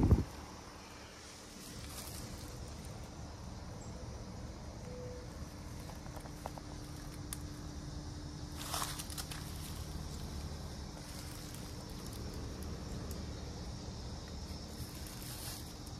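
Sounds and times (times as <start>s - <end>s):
heat pump humming: 0.0s - 15.9s
footsteps on leaf mulch: 1.5s - 3.0s, 8.5s - 12.4s, 14.8s - 15.9s.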